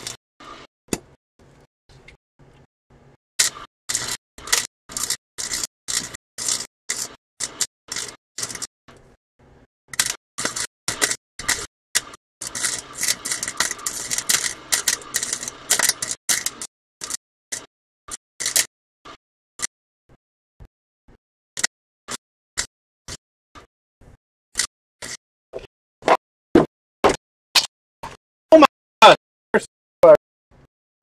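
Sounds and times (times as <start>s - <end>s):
welding arc crackling: 10.0s - 17.2s.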